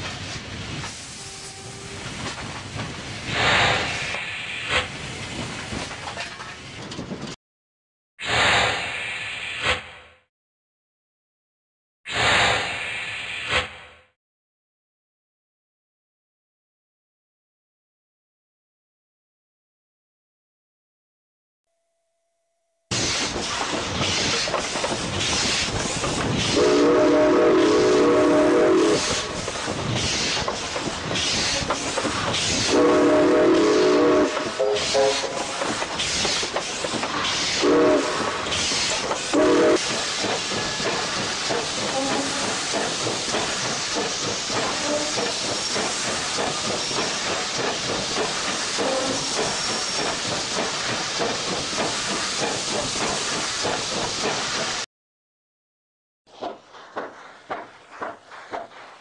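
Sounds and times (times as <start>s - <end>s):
steam hissing in puffs: 0.1s - 5.9s, 8.2s - 9.9s, 12.1s - 13.8s, 22.9s - 54.8s
steam locomotive whistle: 1.1s - 2.0s, 26.5s - 29.4s, 32.6s - 35.5s, 37.6s - 38.4s, 39.3s - 39.9s, 44.8s - 45.3s.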